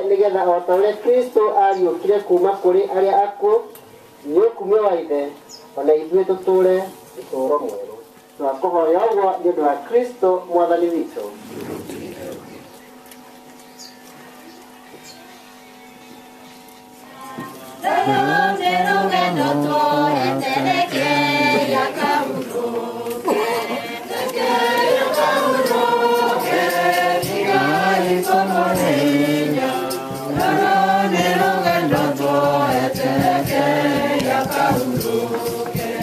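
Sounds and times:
congregation singing a hymn: 17.1 - 36.0.

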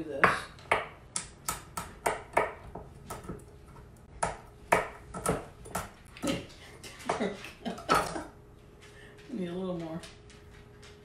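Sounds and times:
knife chopping on wooden board: 0.2 - 3.4, 4.2 - 5.9.

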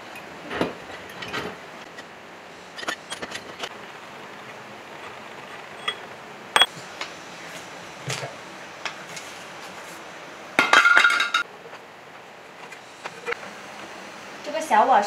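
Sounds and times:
steel parts clinking and knocking: 2.7 - 3.7, 5.0 - 6.7
ringing metal clatter: 5.4 - 6.7.

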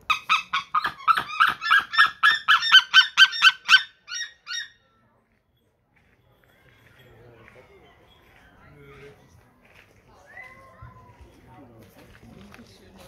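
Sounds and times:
eagle calling: 0.0 - 4.8.

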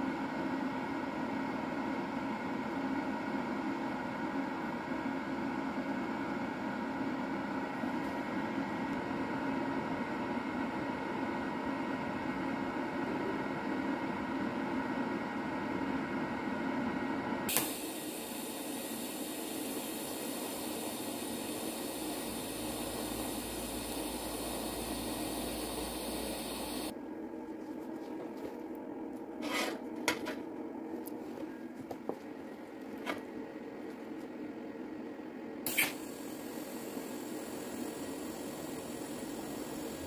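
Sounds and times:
welding arc hissing: 17.5 - 26.9, 35.7 - 40.0
welder hum: 17.5 - 27.0, 35.6 - 40.0.

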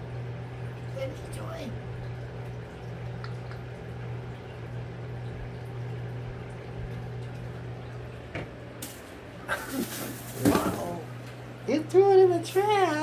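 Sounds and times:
low appliance hum: 0.0 - 13.0
plastic bag rustle and clatter: 8.9 - 11.0.

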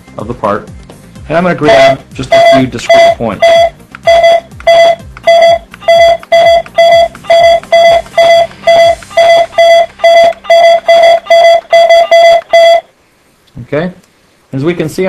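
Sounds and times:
short electronic beeps: 1.7 - 12.9.

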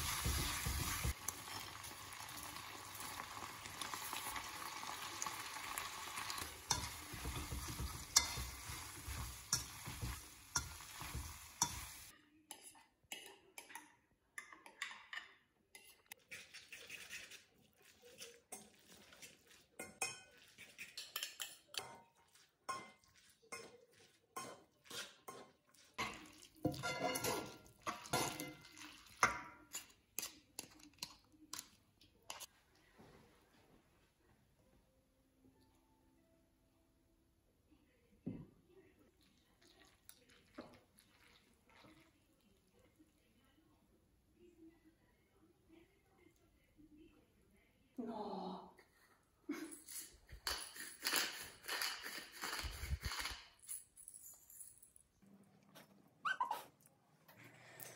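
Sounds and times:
food sizzling in a pan: 0.0 - 12.1.

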